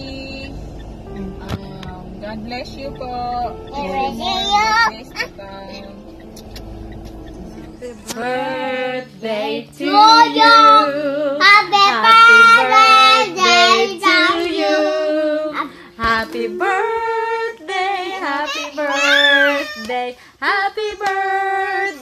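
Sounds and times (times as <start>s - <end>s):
woman singing along: 0.0s - 22.0s
child singing loudly: 18.2s - 19.9s.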